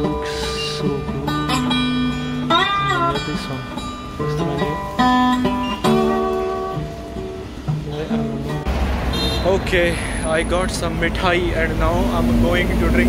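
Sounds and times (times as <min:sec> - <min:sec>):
plucked guitar melody: 0:00.0 - 0:08.7.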